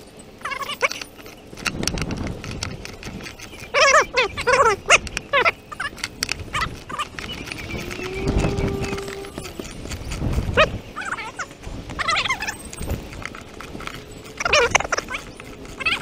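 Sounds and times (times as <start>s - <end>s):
animal calls with wavering pitch: 3.7s - 12.7s.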